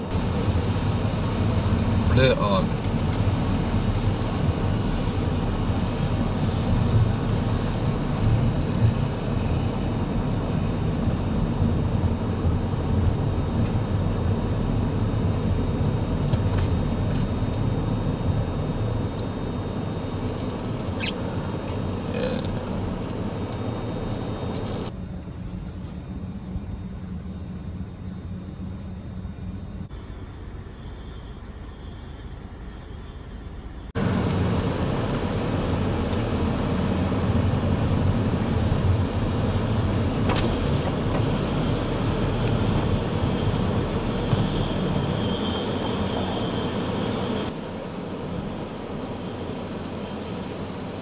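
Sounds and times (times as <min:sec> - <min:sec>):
car engine and road noise: 0:00.0 - 0:51.0.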